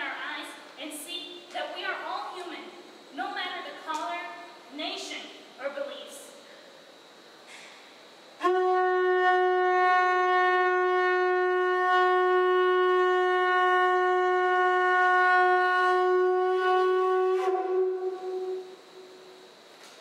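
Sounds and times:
conch shell trumpet blown: 8.4s - 19.2s.

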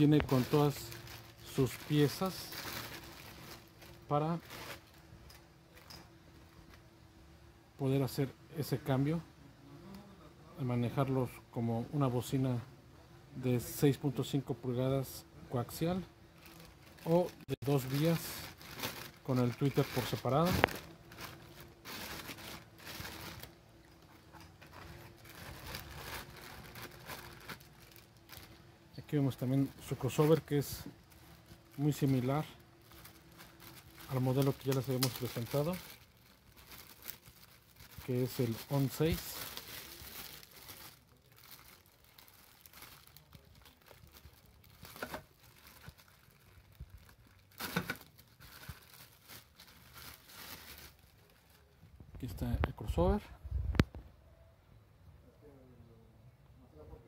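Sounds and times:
plastic bags crinkling: 0.0s - 6.8s, 15.6s - 51.8s.

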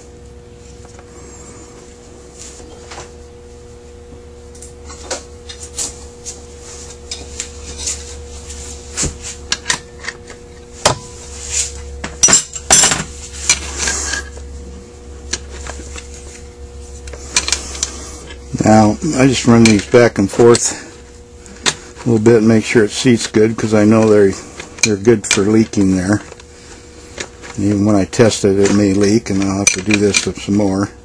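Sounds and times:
metal parts and tools clinking: 12.2s - 14.3s, 28.6s - 30.5s.

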